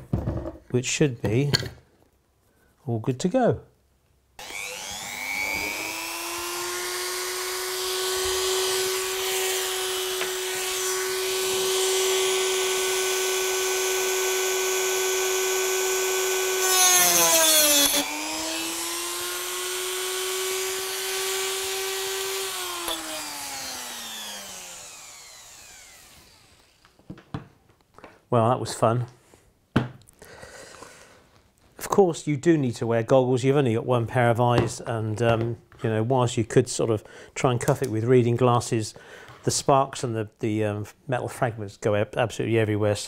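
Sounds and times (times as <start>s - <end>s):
disc cutting wire rasp: 4.4s - 26.0s
rotary tool whining: 4.4s - 27.0s.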